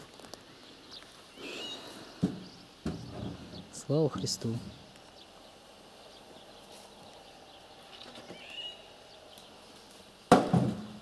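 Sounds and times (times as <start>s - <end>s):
faint bird call: 1.0s - 3.8s, 6.1s - 9.3s
loud thump: 10.3s - 11.0s.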